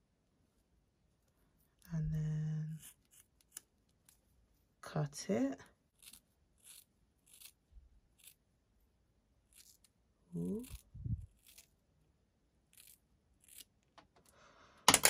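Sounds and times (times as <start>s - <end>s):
scissors snipping hair: 2.7s - 4.2s, 6.0s - 7.6s
person humming: 10.3s - 11.2s.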